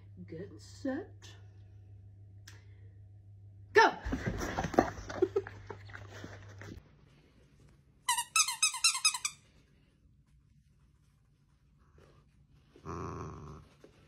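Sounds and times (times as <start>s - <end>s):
squeaky toy squeaking: 8.1s - 9.4s.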